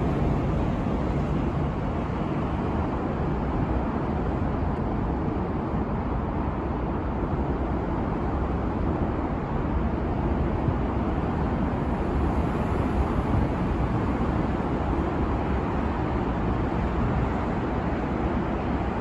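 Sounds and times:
road traffic rumble overhead: 0:00.0 - 0:19.0.

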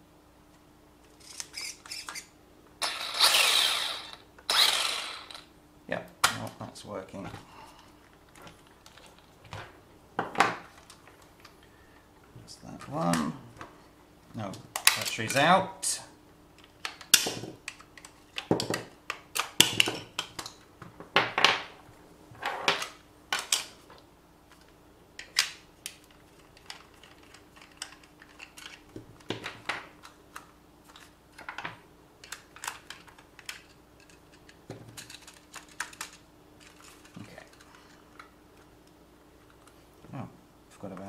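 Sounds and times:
faint steady hum: 0:00.0 - 0:41.0
clatter of plastic and metal parts: 0:26.0 - 0:29.9, 0:30.9 - 0:38.3.

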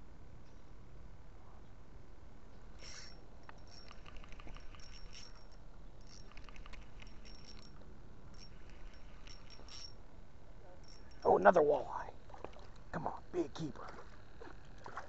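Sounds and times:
fishing reel clicking: 0:02.8 - 0:10.0.

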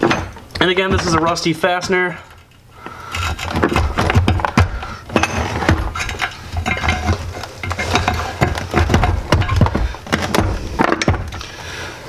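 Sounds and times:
wrench clinking and scraping on bolt: 0:05.1 - 0:11.1.

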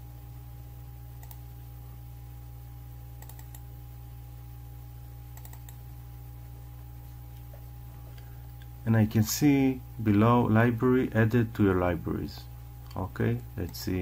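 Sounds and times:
low electrical hum: 0:00.0 - 0:14.0
computer mouse clicks: 0:01.2 - 0:01.5, 0:03.2 - 0:03.6, 0:05.4 - 0:05.8.

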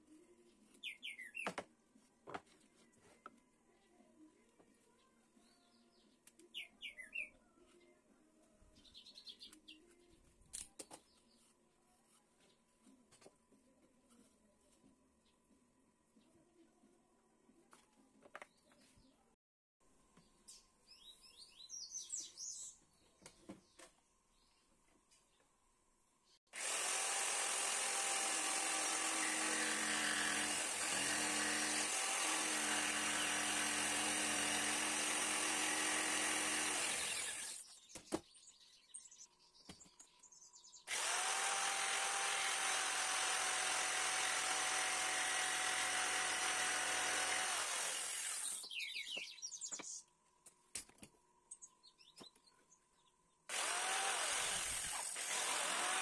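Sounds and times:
jigsaw cutting wooden board: 0:26.5 - 0:37.6, 0:40.9 - 0:48.6, 0:53.5 - 0:56.0.

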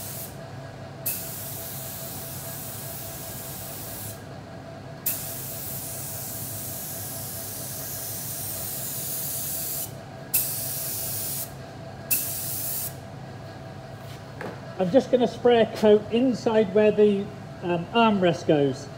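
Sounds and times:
spray gun hissing: 0:00.0 - 0:00.3, 0:01.1 - 0:04.2, 0:05.1 - 0:11.5, 0:12.1 - 0:13.0
steady low hum: 0:00.0 - 0:18.9.

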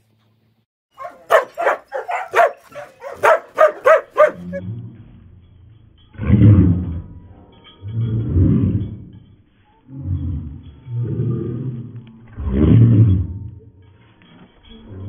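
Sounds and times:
dog barking: 0:00.9 - 0:04.6.

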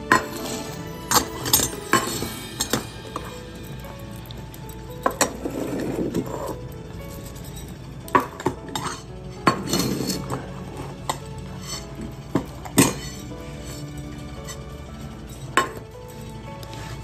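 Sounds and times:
metal food bowls clinking: 0:11.1 - 0:16.4.

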